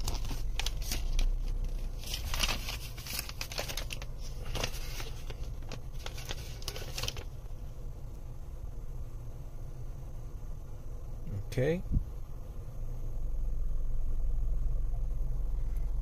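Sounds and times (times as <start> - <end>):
paper crinkling and rustling: 0.0 - 7.3
low steady hum: 0.0 - 16.0.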